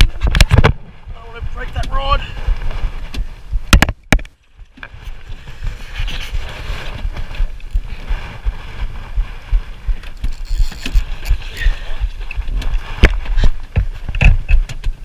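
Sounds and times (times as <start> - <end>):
wind and water rumble: 0.0 - 15.0.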